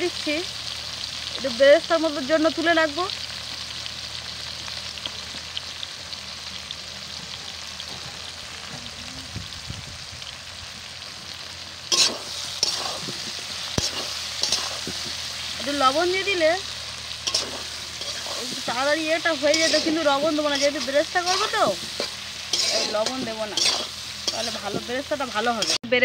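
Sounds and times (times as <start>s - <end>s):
onions sizzling in hot oil: 0.0s - 26.0s
metal spatula scraping pan: 11.9s - 15.2s, 17.2s - 25.9s.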